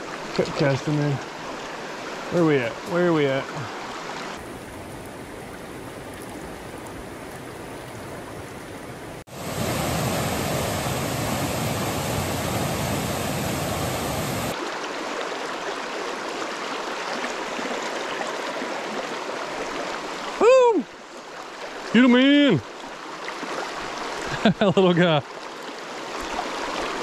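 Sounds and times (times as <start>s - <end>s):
creek water running over rocks: 0.0s - 27.0s
waterfall rushing over boulders: 9.2s - 17.7s.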